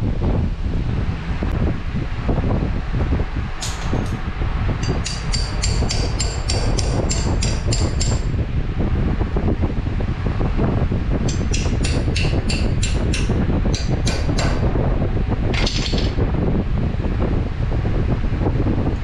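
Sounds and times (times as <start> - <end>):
steady low rumble: 0.0 - 19.0
hammer striking metal: 4.8 - 8.3, 11.3 - 14.6.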